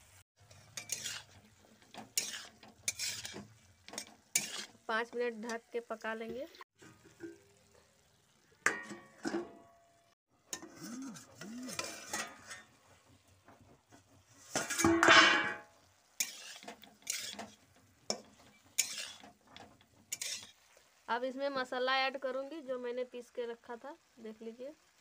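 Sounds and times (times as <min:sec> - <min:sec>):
metal cookware clattering: 0:00.4 - 0:04.7, 0:08.6 - 0:20.5.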